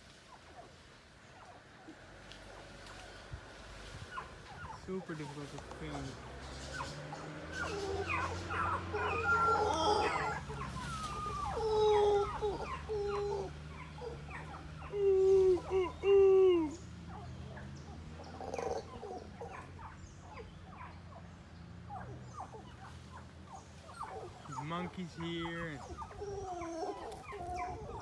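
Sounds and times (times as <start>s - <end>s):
animal calls with pitched notes: 4.0s - 21.3s, 21.9s - 28.0s.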